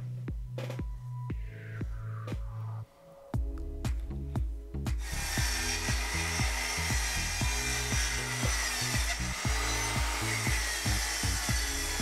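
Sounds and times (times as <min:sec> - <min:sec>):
background music with steady beat: 0:00.0 - 0:12.0
circular saw cutting wood: 0:05.0 - 0:12.0.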